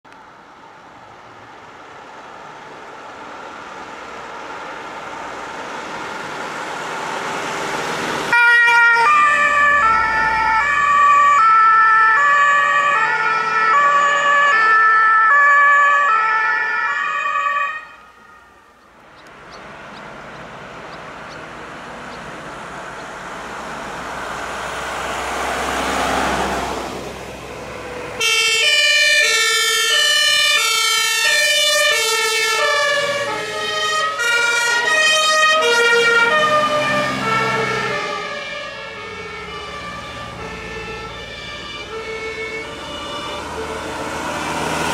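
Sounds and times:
vehicle driving past: 2.5s - 11.6s, 18.4s - 29.2s, 30.0s - 44.9s
two-tone fire engine horn: 8.3s - 18.8s, 27.7s - 44.5s.

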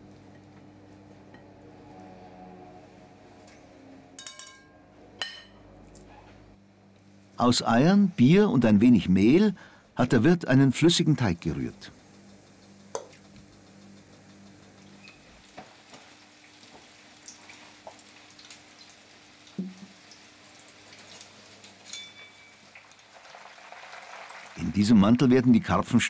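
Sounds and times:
fish frying in oil: 11.9s - 24.6s.

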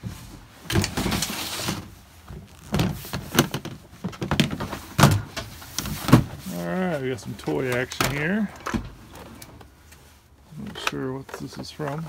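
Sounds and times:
plastic tote scraping: 0.7s - 8.5s.

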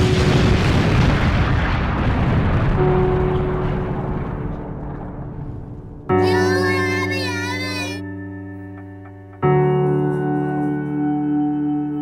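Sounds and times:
low explosion rumble: 0.0s - 6.2s.

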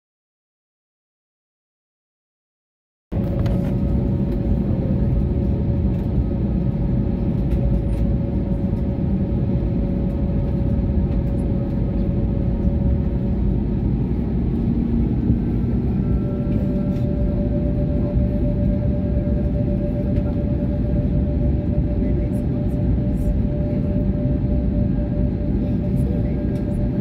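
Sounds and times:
jet engine low rumble: 3.1s - 27.0s
jet engine whine: 3.1s - 27.0s.

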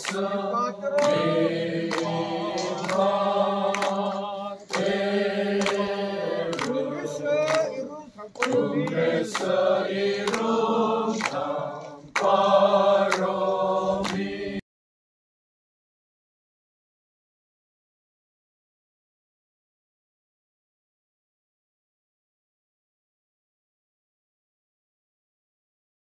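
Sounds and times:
congregation singing a hymn: 0.0s - 14.6s.

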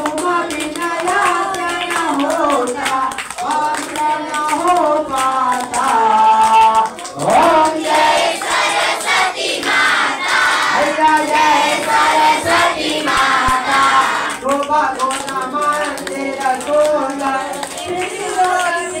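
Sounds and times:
hand clapping: 0.0s - 19.0s
children singing in unison: 7.2s - 14.4s.

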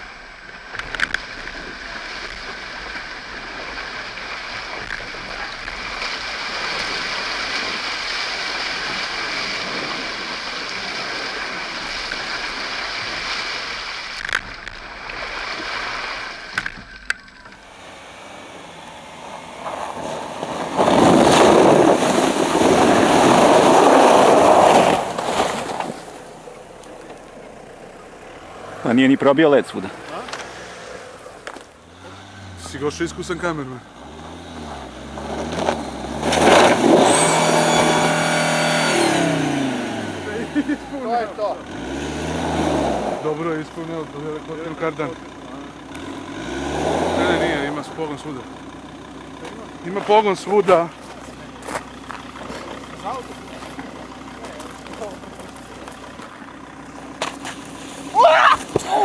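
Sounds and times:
vehicle rumbling through ruts: 0.0s - 59.0s
water and slush splashing: 0.8s - 17.1s, 18.9s - 27.3s.

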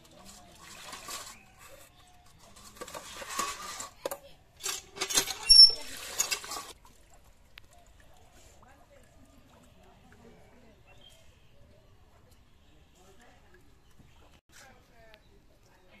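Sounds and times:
water splashing in a bowl: 5.0s - 11.1s.

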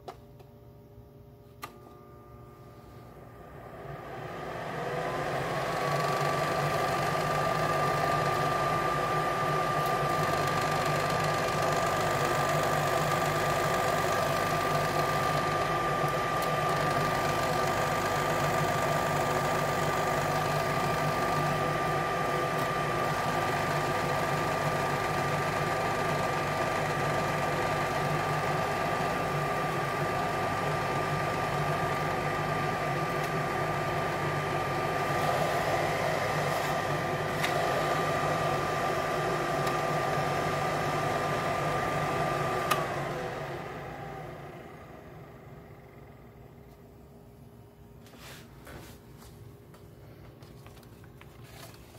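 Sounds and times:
bonnet hair dryer running: 3.3s - 46.2s.

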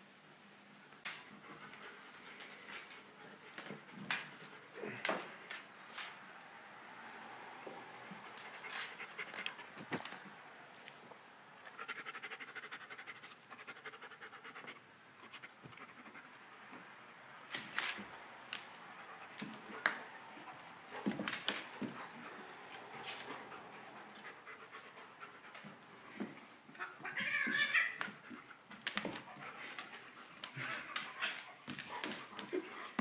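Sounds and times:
dog panting rapidly: 11.6s - 16.4s, 18.9s - 26.4s.

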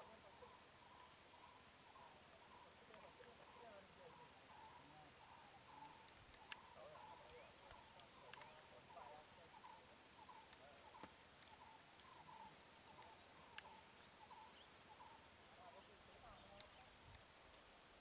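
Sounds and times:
small birds chirping: 0.0s - 18.0s
sharp clicks: 6.0s - 6.7s, 7.6s - 8.6s.

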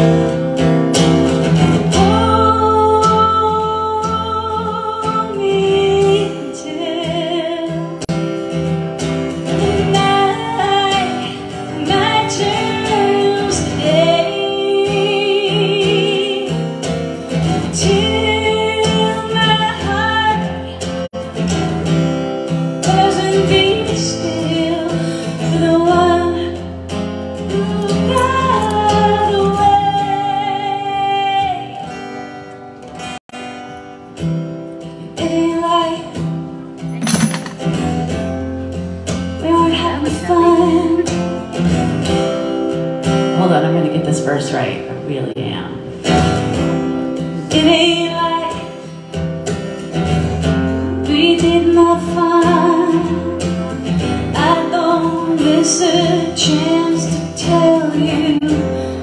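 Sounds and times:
strummed acoustic guitar: 0.0s - 59.0s
woman singing with vibrato: 1.9s - 8.1s, 9.5s - 16.7s, 17.6s - 20.8s, 27.4s - 31.9s, 39.4s - 41.5s, 50.9s - 53.6s, 54.2s - 59.0s.

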